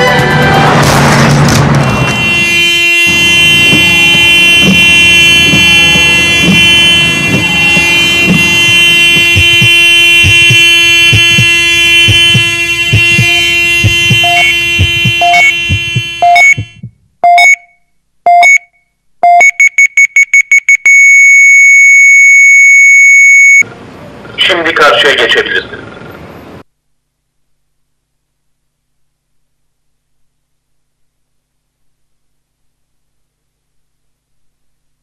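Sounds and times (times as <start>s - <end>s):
droning chord: 3.0s - 16.1s
low thumps: 3.0s - 17.2s
crossing signal beeps: 3.5s - 23.6s.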